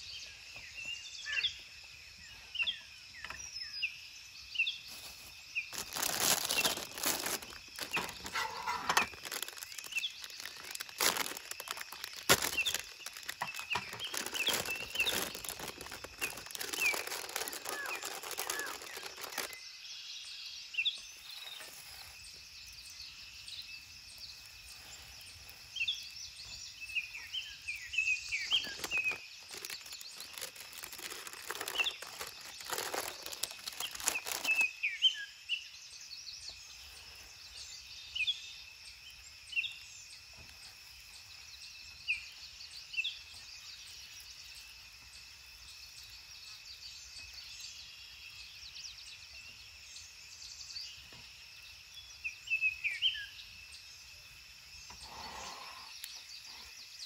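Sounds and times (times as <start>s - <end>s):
birds chirping: 0.0s - 40.3s
high insect drone: 0.2s - 57.0s
crackling rustling noise: 4.8s - 19.6s, 28.0s - 34.8s.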